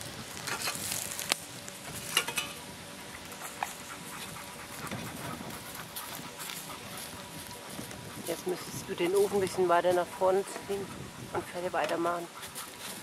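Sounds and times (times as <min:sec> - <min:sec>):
metal pipes clinking: 0:02.1 - 0:02.6.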